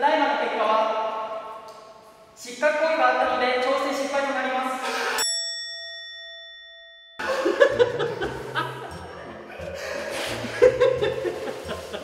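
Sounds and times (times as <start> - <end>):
bell-like ding: 5.2 - 8.0
music with repeating bass line: 7.2 - 12.0
people laughing: 7.2 - 12.0.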